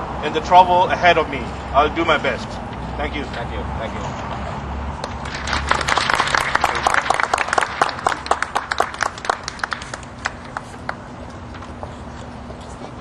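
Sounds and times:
small crowd applauding: 5.0 - 11.1.

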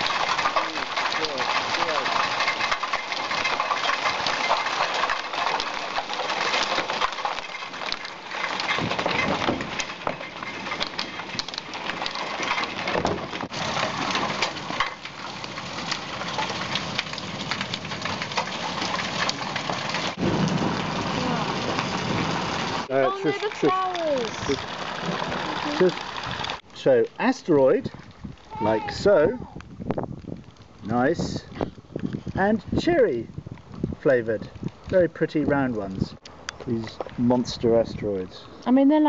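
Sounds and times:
hiss of falling ice and rain: 0.0 - 10.1, 13.5 - 29.6
hail clattering on stone: 0.0 - 39.0.

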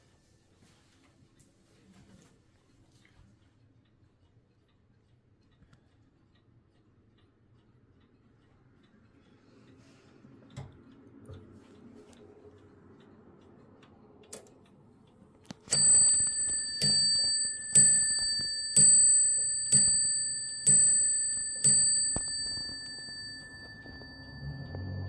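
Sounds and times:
faint clock clicks: 2.6 - 25.0
mantel clock striking bell: 15.7 - 25.0.

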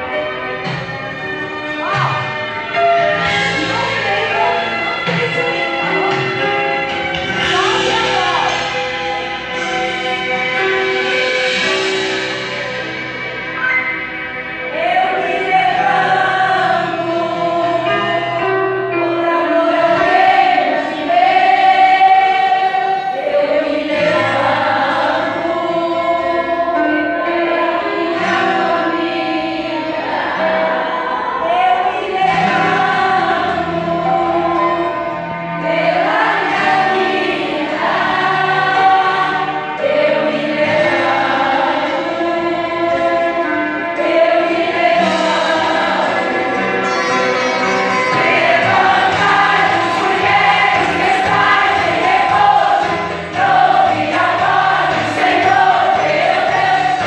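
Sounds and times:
women singing a hymn: 7.1 - 8.8, 14.7 - 46.9, 48.1 - 57.0.

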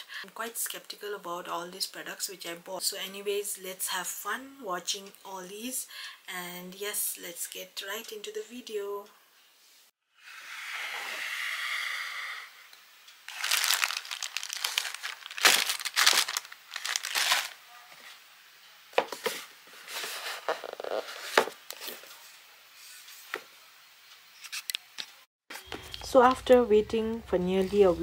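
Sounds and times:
plastic packaging crinkling: 13.3 - 17.6.

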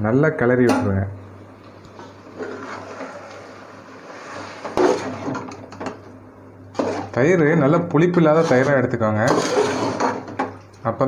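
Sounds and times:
ladle stirring in a metal pot: 6.8 - 7.2, 8.0 - 10.5.

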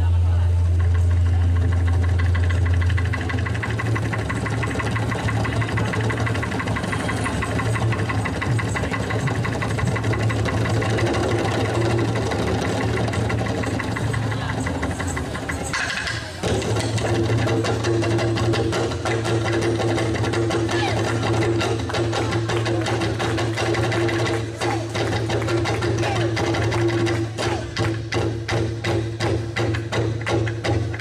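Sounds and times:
small engine running: 0.4 - 15.8.

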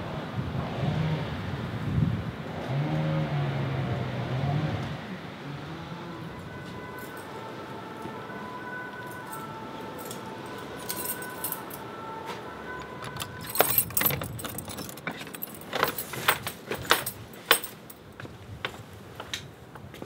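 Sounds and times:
keys jangling: 9.0 - 11.9, 12.8 - 18.1
key turning in door lock: 12.8 - 17.9.

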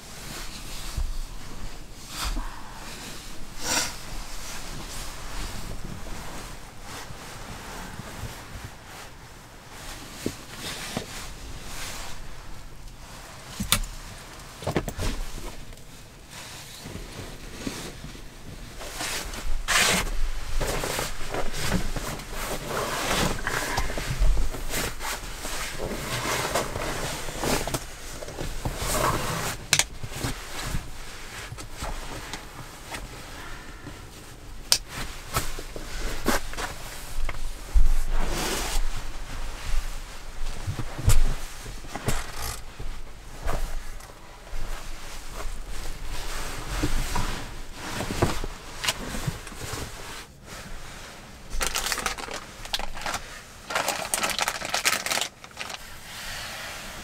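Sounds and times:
sleeping bag and mat rustling: 0.0 - 57.0.

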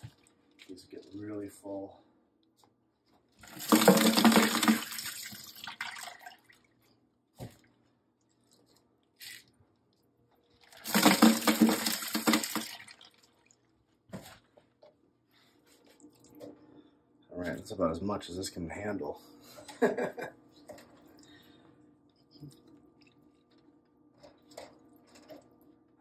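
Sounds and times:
ice water splashing and pouring: 3.4 - 6.7, 10.6 - 13.6.

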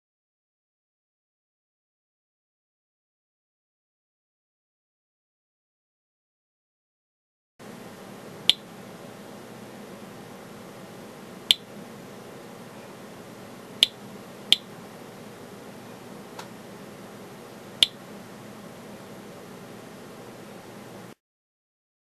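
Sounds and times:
low steady hiss: 7.6 - 21.2.

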